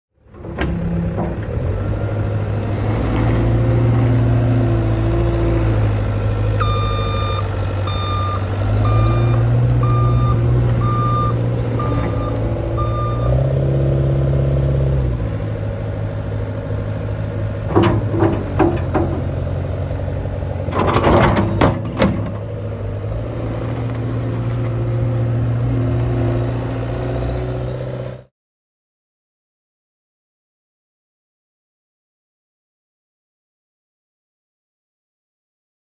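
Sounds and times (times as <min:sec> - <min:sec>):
diesel loader engine running: 0:00.2 - 0:28.3
back-up alarm beeping: 0:06.6 - 0:13.4
sharp metal clanks and knocks: 0:17.7 - 0:19.4, 0:20.7 - 0:22.4.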